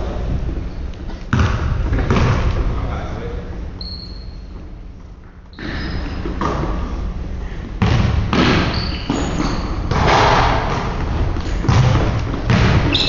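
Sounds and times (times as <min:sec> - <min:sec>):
basketball bouncing on hardwood floor: 0:01.3 - 0:02.4, 0:07.8 - 0:13.0.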